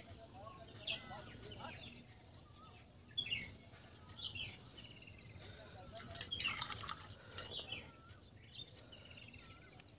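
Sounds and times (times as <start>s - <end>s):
small birds chirping: 0.0s - 9.9s
sharp clicks and clinks: 6.0s - 7.6s.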